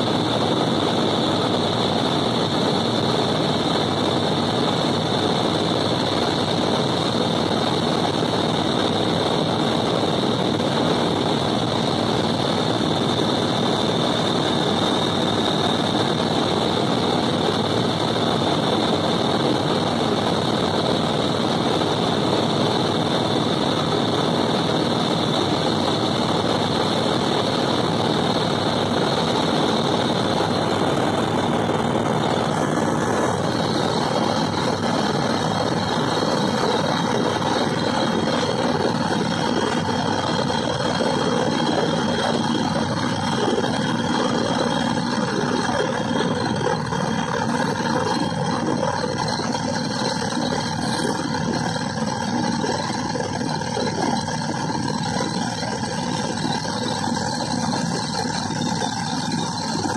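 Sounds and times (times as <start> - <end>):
helicopter engine and rotor noise: 0.0 - 59.9.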